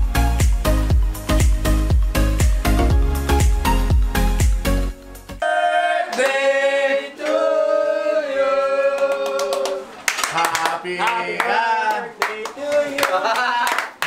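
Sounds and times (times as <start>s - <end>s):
men singing together: 5.4s - 9.8s
hand claps: 9.0s - 14.0s.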